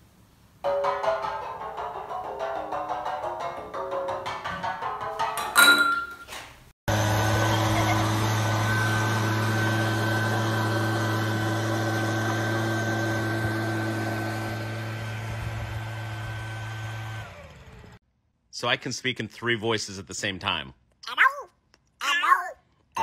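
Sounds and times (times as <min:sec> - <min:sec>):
leaf blower running: 0:06.9 - 0:18.0.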